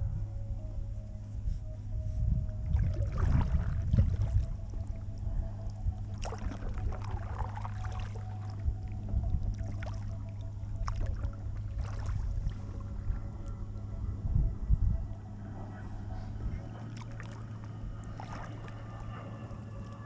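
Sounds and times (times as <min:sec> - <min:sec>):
low rumble: 0:00.0 - 0:20.0
paddle splashing water: 0:02.7 - 0:05.0, 0:06.1 - 0:12.8, 0:16.8 - 0:19.9.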